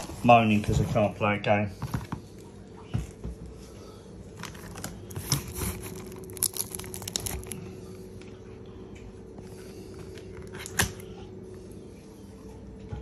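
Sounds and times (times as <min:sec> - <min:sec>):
faint steady hum: 0:00.0 - 0:13.0
packaging rustling and crinkling: 0:04.3 - 0:07.7.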